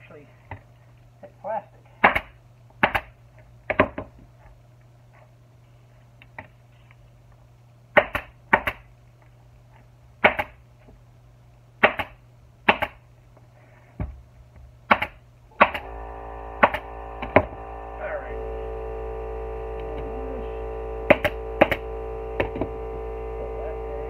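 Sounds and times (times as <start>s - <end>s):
pneumatic staple gun firing: 15.0s - 15.9s, 16.6s - 17.6s, 21.1s - 22.7s.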